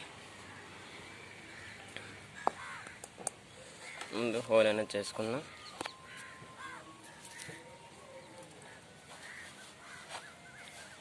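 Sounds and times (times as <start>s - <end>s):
bird chirps: 5.4s - 11.0s.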